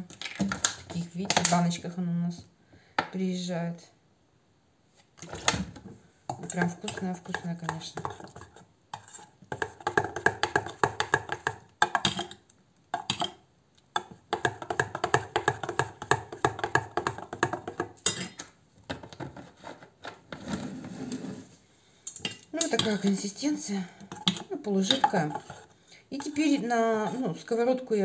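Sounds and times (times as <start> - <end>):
metal spoon clinking in steel bowl: 18.0 - 18.4.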